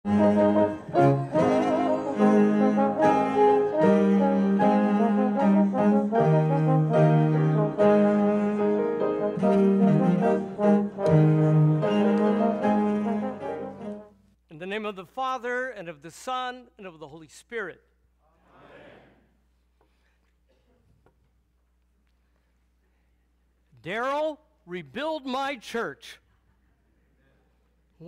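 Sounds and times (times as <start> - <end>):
slow instrumental held chords: 0.1 - 14.4.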